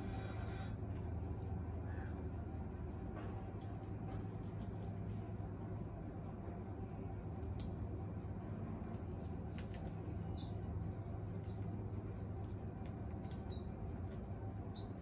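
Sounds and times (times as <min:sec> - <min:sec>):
steady low hum: 0:00.0 - 0:15.0
beak clicks and crunches: 0:06.9 - 0:15.0
parrot chirps: 0:14.7 - 0:15.0.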